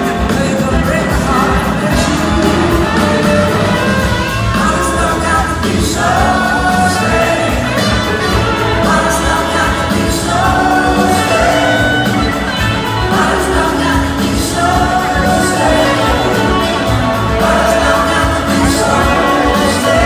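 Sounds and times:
drums and cymbals: 0:00.0 - 0:20.0
electric guitars: 0:00.0 - 0:20.0
trumpet and saxophone: 0:00.0 - 0:20.0
voices singing: 0:00.0 - 0:20.0.

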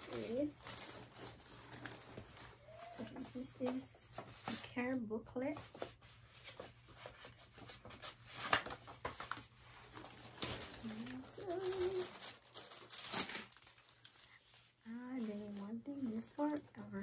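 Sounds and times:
paper rustling and crinkling: 0:00.0 - 0:04.7, 0:05.5 - 0:17.0
person humming: 0:10.8 - 0:12.2.

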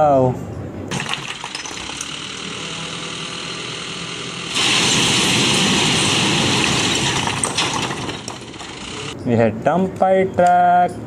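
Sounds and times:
truck engine running: 0:00.9 - 0:09.2.

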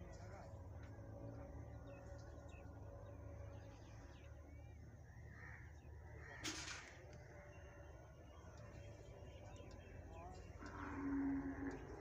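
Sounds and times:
birds chirping: 0:07.4 - 0:12.0.

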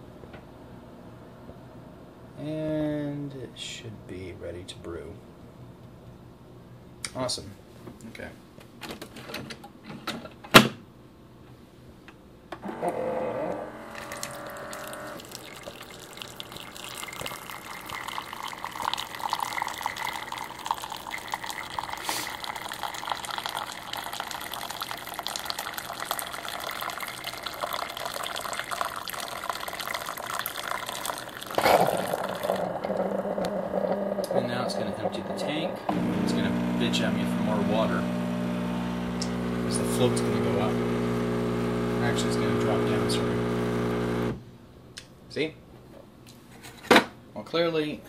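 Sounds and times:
coffee maker humming: 0:12.6 - 0:44.4
liquid pouring into cup: 0:13.8 - 0:44.4
coffee maker click: 0:39.0 - 0:44.4.

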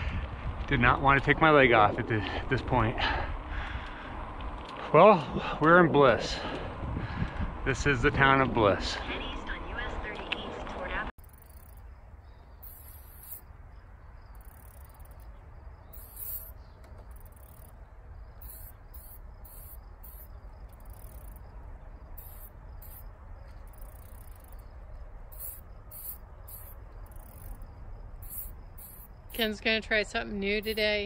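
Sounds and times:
steady low rumble: 0:00.0 - 0:31.0
insects chirping high-pitched: 0:11.2 - 0:31.0.

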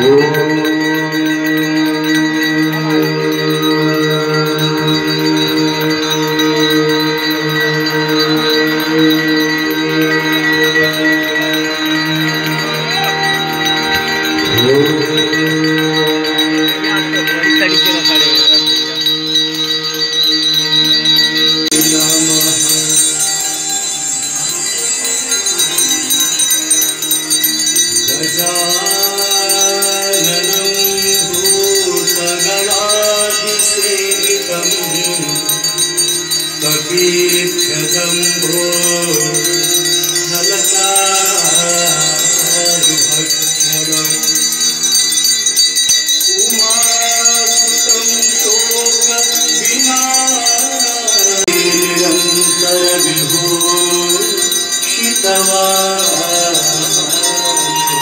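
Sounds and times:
devotional song singing: 0:00.0 - 0:58.0
jingling bells: 0:00.0 - 0:58.0.

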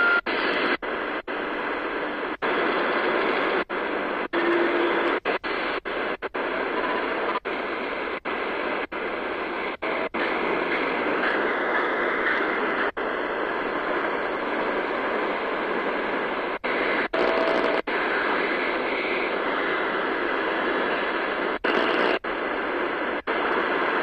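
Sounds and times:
faint radio whistle: 0:00.0 - 0:00.4, 0:04.3 - 0:05.2
radio static hiss: 0:00.0 - 0:24.0.

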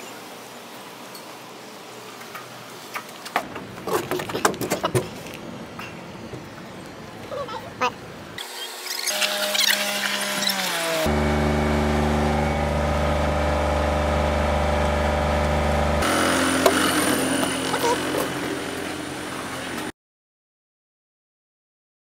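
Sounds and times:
open-air noise: 0:00.0 - 0:19.9
ferry engine running: 0:11.0 - 0:19.9.

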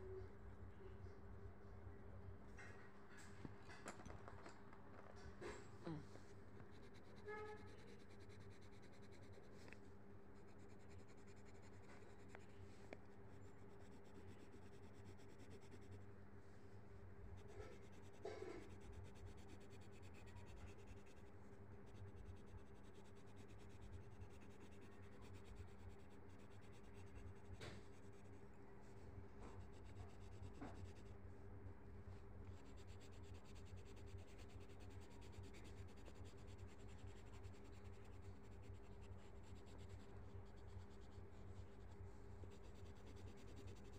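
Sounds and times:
steady low hum: 0:00.0 - 0:43.9
pencil scratching on paper: 0:06.6 - 0:09.8, 0:10.4 - 0:12.7, 0:13.3 - 0:16.0, 0:17.4 - 0:28.6, 0:32.5 - 0:43.9.

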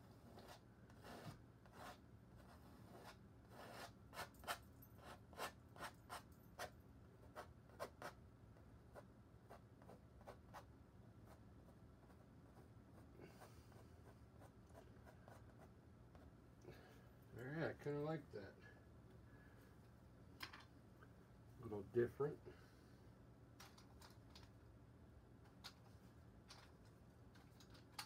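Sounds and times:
painting knife scraping canvas: 0:00.0 - 0:08.2.

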